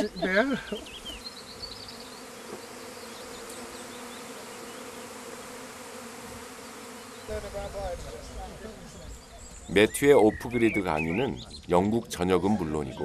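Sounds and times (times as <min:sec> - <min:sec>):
bee swarm buzzing: 0:00.0 - 0:10.0.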